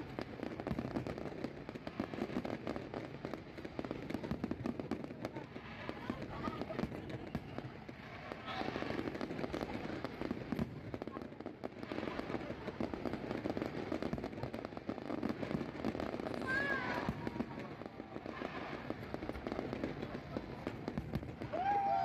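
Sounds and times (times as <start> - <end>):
fireworks crackling: 0.0 - 22.0.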